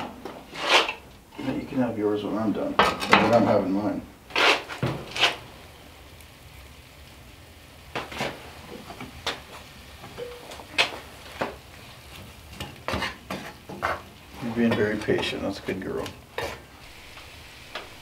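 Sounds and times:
frying pan hissing: 3.4s - 18.0s
cookware clinking: 10.2s - 11.0s.

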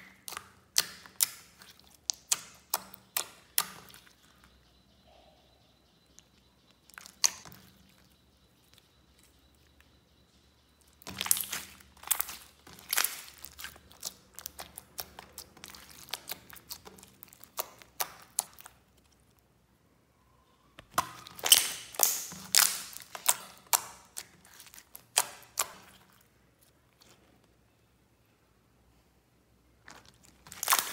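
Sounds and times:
slime squeezed with sticky clicks: 11.0s - 18.8s, 20.8s - 26.1s, 29.9s - 30.9s.

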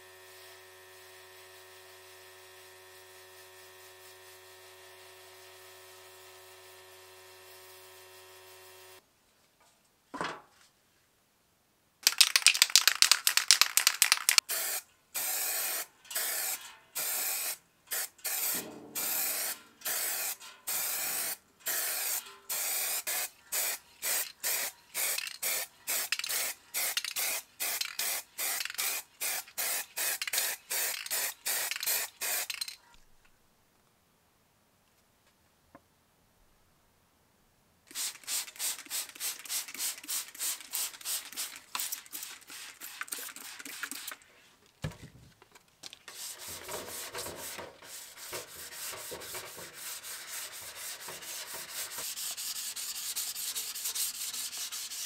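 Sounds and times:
spray paint can hissing: 12.0s - 32.8s, 37.9s - 44.2s, 46.1s - 55.0s.

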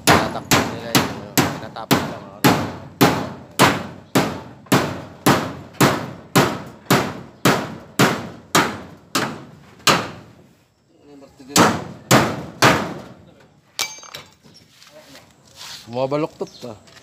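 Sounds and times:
hammer nailing metal sheets: 0.0s - 10.3s, 11.5s - 13.2s.

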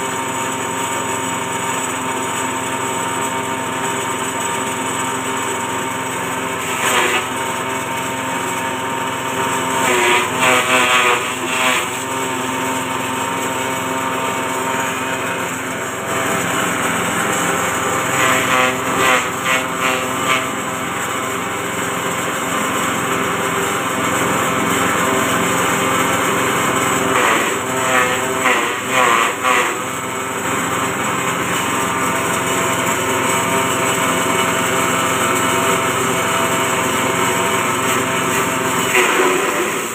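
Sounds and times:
small petrol engine running: 0.0s - 39.9s
blades cutting grass stalks: 9.8s - 13.7s, 14.3s - 20.6s, 37.5s - 39.9s.

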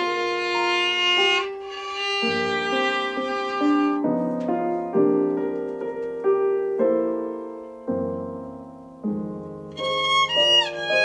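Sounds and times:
violin playing slow melody: 0.0s - 4.2s, 9.7s - 11.0s
piano chords: 0.0s - 11.0s.

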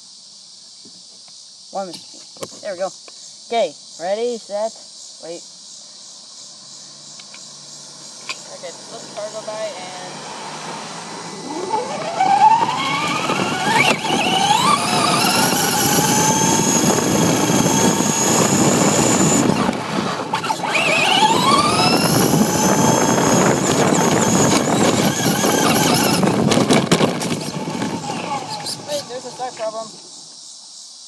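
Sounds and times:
tyres rumbling on pavement: 7.8s - 30.2s
electric motor whining: 8.8s - 30.0s.

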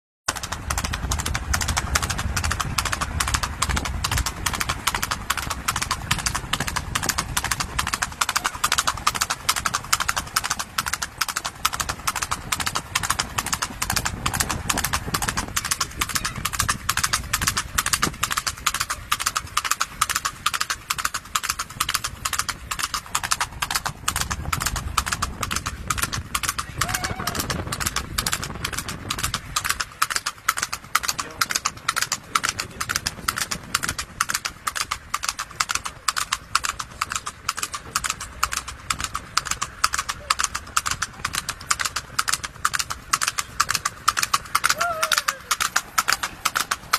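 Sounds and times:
horse hooves clip-clopping: 0.3s - 46.9s.

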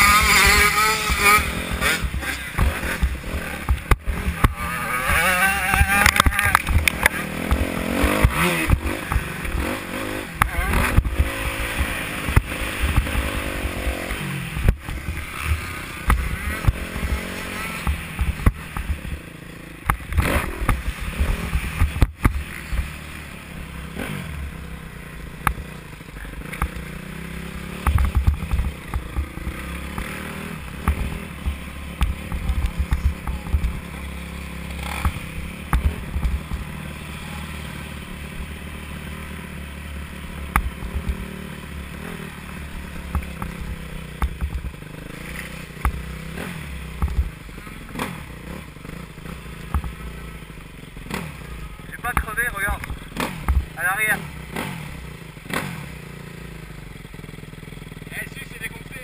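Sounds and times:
dirt bike engine: 0.0s - 59.0s.

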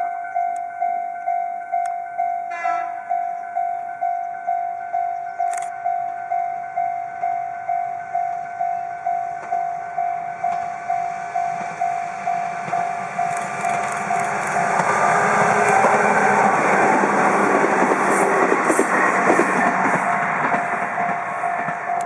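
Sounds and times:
level crossing alarm ringing: 0.0s - 17.6s
electric train running: 0.0s - 22.0s.

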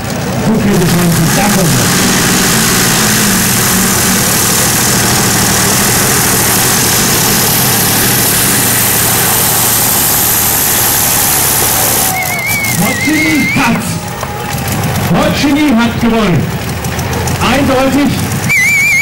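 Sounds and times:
tractor engine at full power: 0.0s - 19.0s
wavering high whistle: 11.8s - 13.8s, 18.5s - 19.0s.

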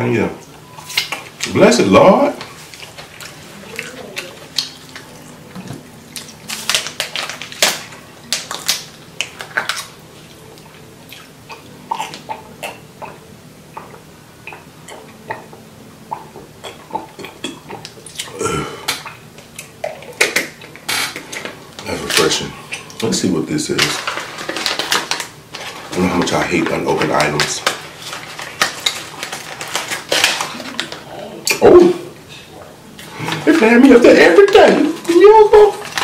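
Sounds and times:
faint steady hum: 0.0s - 36.0s
mouth clicks and smacks: 13.8s - 21.4s.

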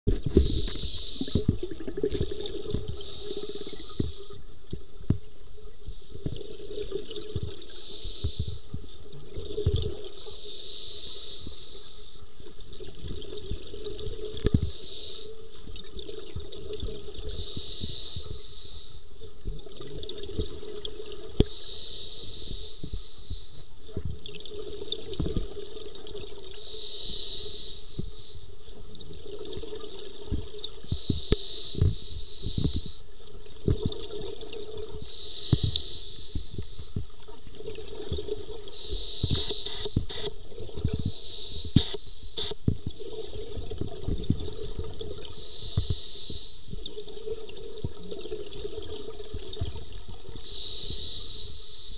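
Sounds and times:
regulator inhale hiss: 0.2s - 1.6s, 2.7s - 4.4s, 7.6s - 8.8s, 10.2s - 12.3s, 14.4s - 15.4s, 17.2s - 19.1s, 21.4s - 23.7s, 26.5s - 28.6s, 30.8s - 33.1s, 35.0s - 37.0s, 38.7s - 42.7s, 45.3s - 46.8s, 50.3s - 51.9s.

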